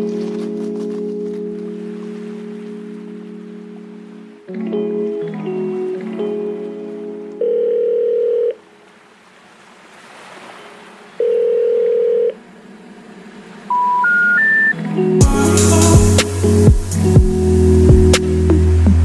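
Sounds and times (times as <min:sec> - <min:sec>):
background music: 0:00.0 - 0:08.2, 0:13.7 - 0:19.0
steady telephone tones: 0:07.4 - 0:08.6, 0:11.2 - 0:12.4
rising short beeps: 0:13.7 - 0:14.8.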